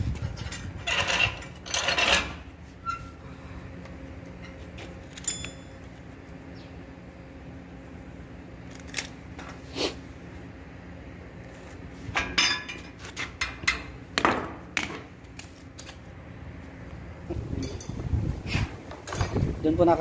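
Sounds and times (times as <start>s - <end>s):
metal rod clinks and scrapes: 0.1s - 3.1s, 4.4s - 6.0s, 17.5s - 18.1s, 19.0s - 19.5s
ringing metal clink: 5.2s - 5.9s, 17.6s - 18.0s.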